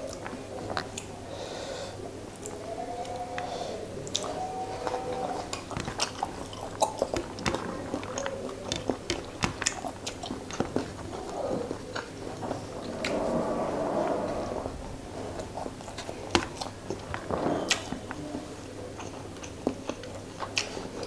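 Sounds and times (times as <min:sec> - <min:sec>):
wet chewing and mouth smacks: 0:04.0 - 0:12.2, 0:18.8 - 0:21.0.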